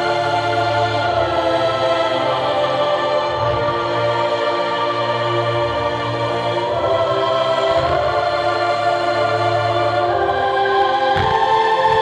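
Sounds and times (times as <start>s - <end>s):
choral music: 0.0s - 12.0s
low thump: 11.2s - 12.0s.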